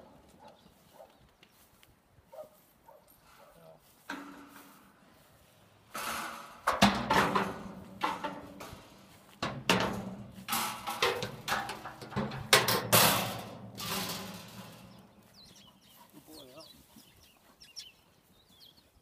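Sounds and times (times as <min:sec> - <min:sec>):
steel gate banging and rattling: 0:04.1 - 0:04.7, 0:05.9 - 0:15.2.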